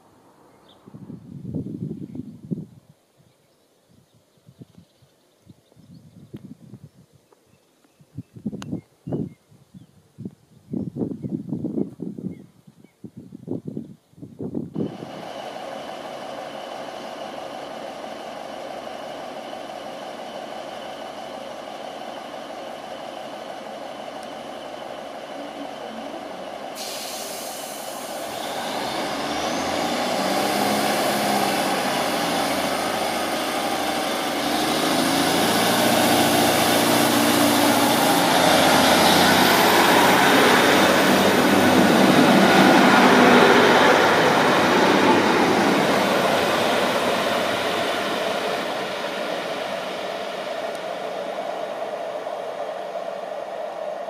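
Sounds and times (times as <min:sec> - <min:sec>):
diesel train engine idling: 0:14.8 - 0:54.0
train pulling away whine: 0:14.8 - 0:54.0
air brake hiss: 0:26.7 - 0:31.6.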